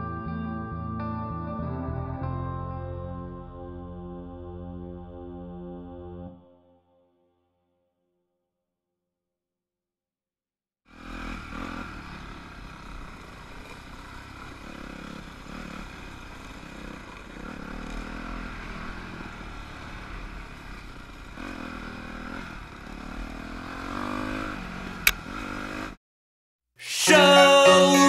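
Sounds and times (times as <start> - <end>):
dirt bike engine revving: 10.9 - 26.0.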